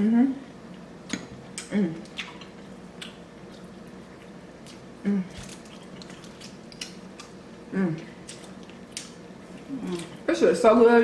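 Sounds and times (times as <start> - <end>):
wet eating smacks and squishes: 1.0 - 7.4, 8.0 - 10.3.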